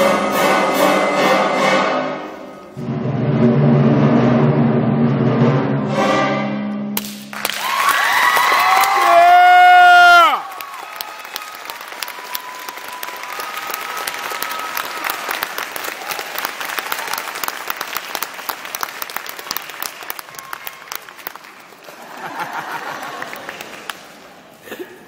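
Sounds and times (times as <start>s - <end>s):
audience applauding: 7.3s - 24.5s.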